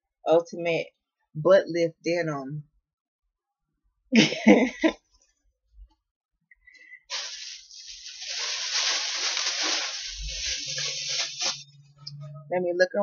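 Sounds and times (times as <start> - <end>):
clothes rustling: 7.1 - 11.6.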